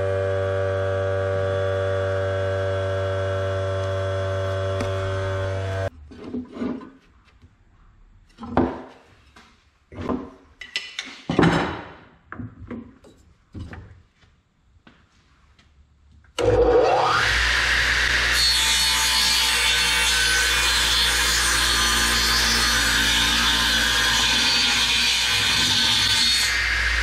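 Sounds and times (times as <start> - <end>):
saw whining and cutting wood: 0.0 - 5.9, 16.4 - 27.0.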